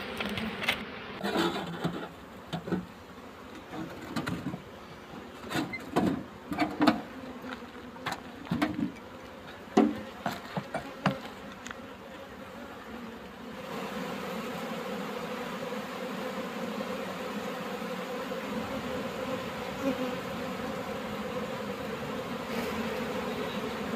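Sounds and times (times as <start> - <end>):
honeybees buzzing: 0.0 - 23.9.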